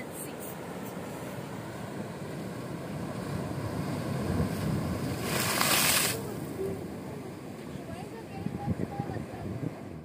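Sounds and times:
sea waves surging against rocks: 1.4 - 8.1
wave breaking with hissing spray: 5.1 - 6.2.

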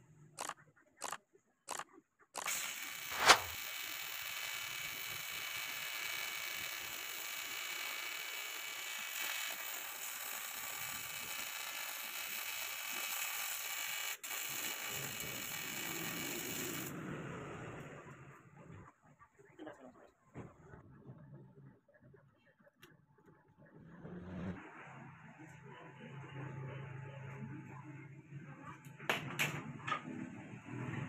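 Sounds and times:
welding arc buzzing hiss: 2.5 - 4.2
loud sharp crack: 3.1 - 3.6.

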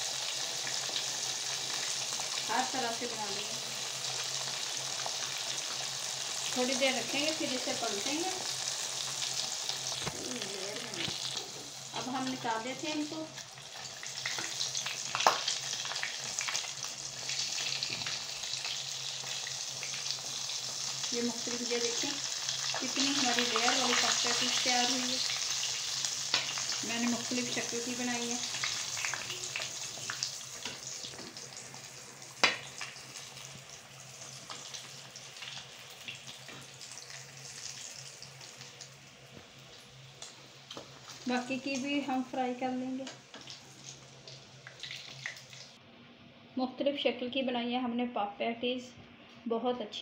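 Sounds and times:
deep-frying sizzle: 0.0 - 45.8.

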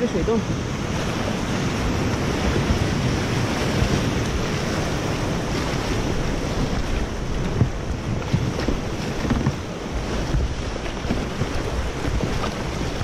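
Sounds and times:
water splashing: 0.0 - 13.0.

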